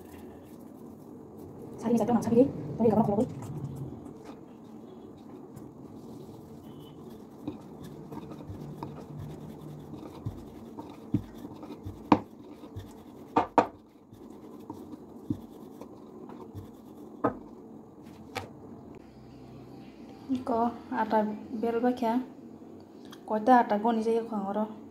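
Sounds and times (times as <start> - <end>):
rolling pin rubbing on dough: 3.4 - 17.6
rolling pin knocking board: 10.2 - 13.8, 16.4 - 17.5.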